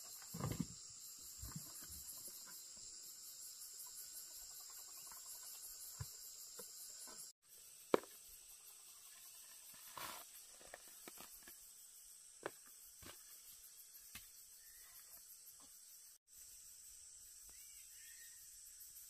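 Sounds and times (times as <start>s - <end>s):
insects chirring: 0.0s - 19.0s
spade scraping: 9.6s - 11.5s.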